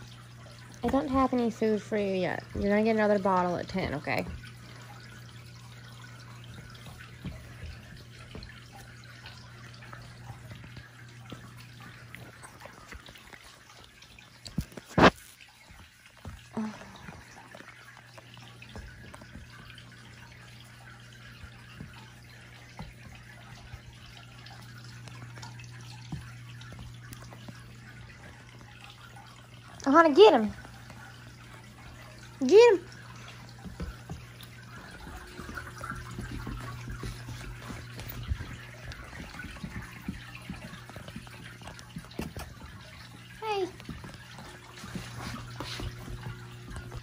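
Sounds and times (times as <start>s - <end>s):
animals nibbling and licking food: 0.0s - 47.0s
faint clicks and rustles: 0.0s - 47.0s
tower fan whirring: 15.9s - 47.0s.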